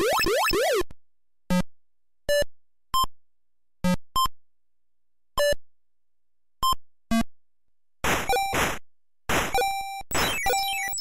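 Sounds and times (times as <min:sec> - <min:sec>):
short electronic beeps: 0:09.6 - 0:11.0.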